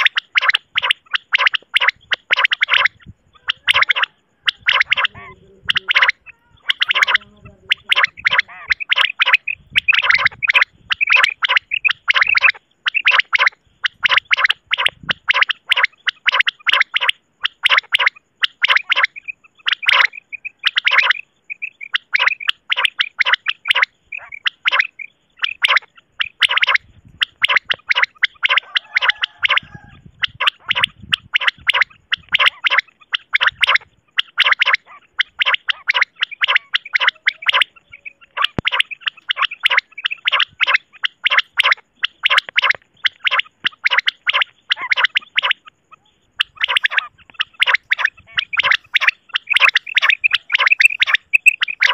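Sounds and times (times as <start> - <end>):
quail calling: 0.0 - 51.9.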